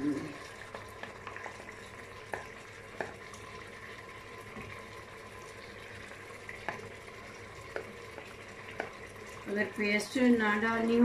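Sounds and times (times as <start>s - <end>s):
chicken sizzling in pot: 0.0s - 11.0s
wooden spoon tapping pot: 0.9s - 3.3s, 6.6s - 6.9s, 7.6s - 9.0s.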